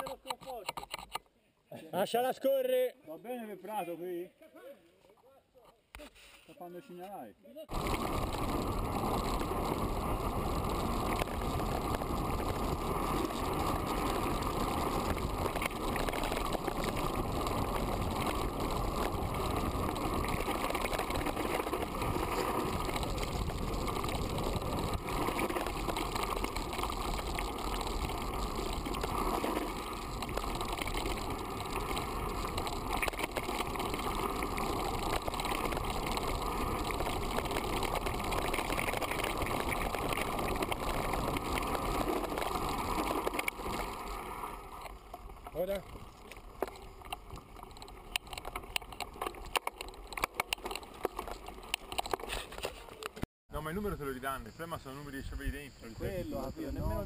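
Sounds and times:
wind rumble: 0:07.7 - 0:52.2, 0:55.2 - 0:57.0
tyres on dirt track: 0:07.7 - 0:53.3.

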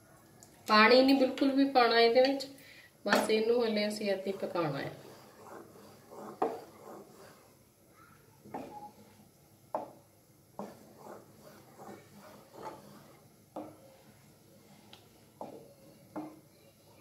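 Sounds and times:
wooden spoon scraping metal pan: 0:03.2 - 0:07.6, 0:08.4 - 0:09.2, 0:10.6 - 0:16.4.

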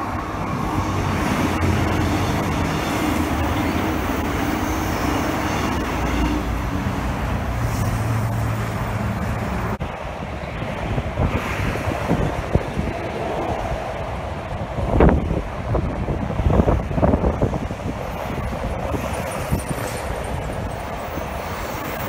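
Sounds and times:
electric train motor hum: 0:00.0 - 0:09.8
freeway traffic noise: 0:00.0 - 0:22.0.

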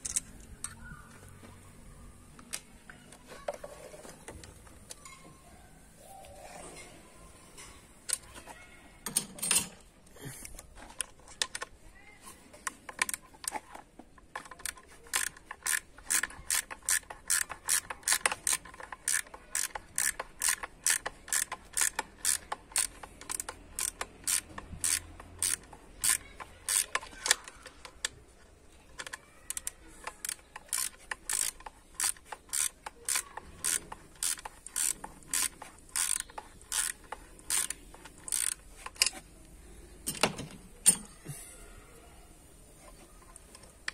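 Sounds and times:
ratchet wrench clicking: 0:00.0 - 0:00.8, 0:14.3 - 0:28.1, 0:29.0 - 0:39.2.

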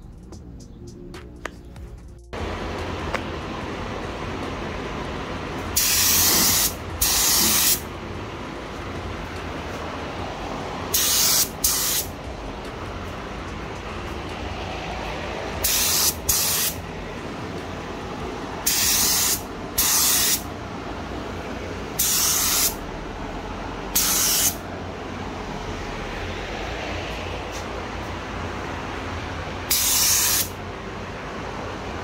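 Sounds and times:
steady low background noise: 0:00.0 - 0:32.0
spray gun hissing bursts: 0:05.8 - 0:07.9, 0:10.9 - 0:12.2, 0:15.6 - 0:16.8, 0:18.6 - 0:20.5, 0:22.0 - 0:22.8, 0:23.9 - 0:24.6, 0:29.7 - 0:30.6.

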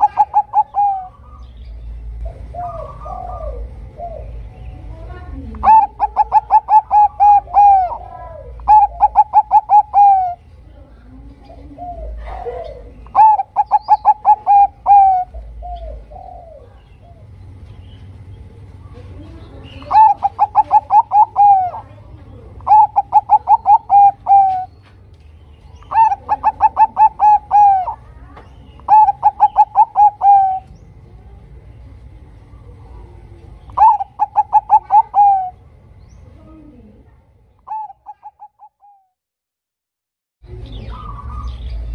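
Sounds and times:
soft low dove coos: 0:00.0 - 0:01.2, 0:02.2 - 0:04.5, 0:05.4 - 0:17.4, 0:18.9 - 0:24.7, 0:25.8 - 0:28.2, 0:32.4 - 0:35.7, 0:36.4 - 0:39.2
dove cooing song: 0:00.0 - 0:24.9, 0:25.6 - 0:36.9, 0:37.6 - 0:39.2, 0:40.5 - 0:41.9.

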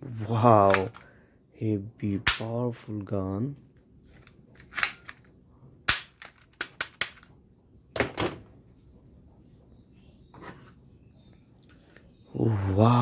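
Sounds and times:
plastic toy guns clicking: 0:00.6 - 0:01.1, 0:04.6 - 0:05.3, 0:05.9 - 0:07.3.

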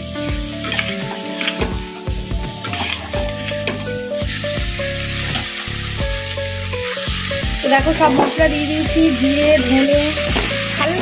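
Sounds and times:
food sizzling in hot oil: 0:00.0 - 0:11.0
spatula scraping a pan: 0:00.6 - 0:04.0.

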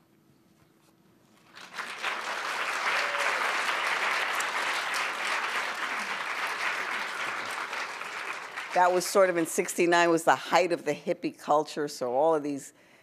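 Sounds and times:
audience applauding: 0:01.4 - 0:09.5.

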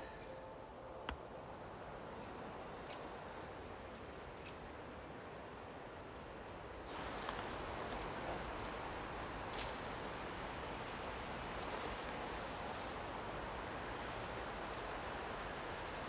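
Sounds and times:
high bird chirp: 0:00.0 - 0:00.9.

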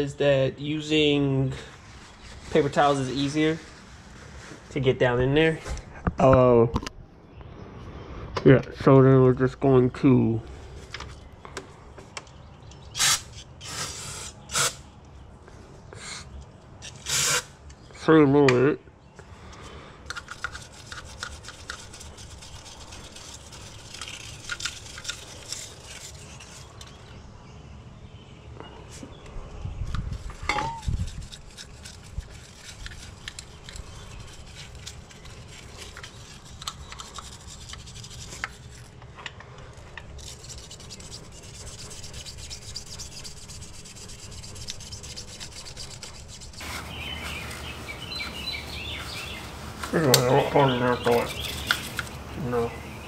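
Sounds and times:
wire brush scrubbing metal: 0:20.2 - 0:27.1, 0:30.3 - 0:38.9, 0:40.2 - 0:52.2.

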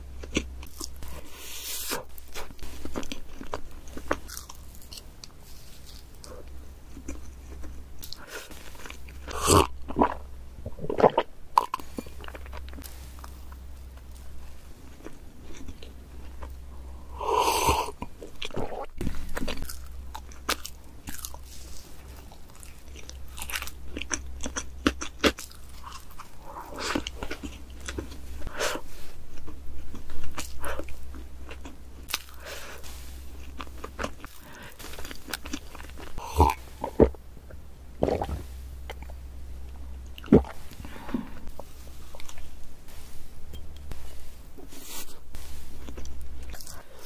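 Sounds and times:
chewing with wet mouth clicks: 0:33.4 - 0:37.2
swallowing gulps: 0:38.0 - 0:39.0.

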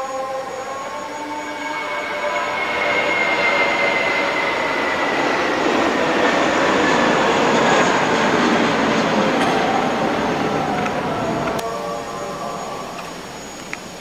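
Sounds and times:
vehicle passing with rushing roar: 0:01.2 - 0:13.6
faint falling whine: 0:07.8 - 0:14.0.

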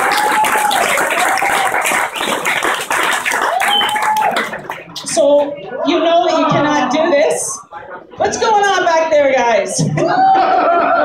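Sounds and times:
people clapping and applauding: 0:00.0 - 0:05.2.

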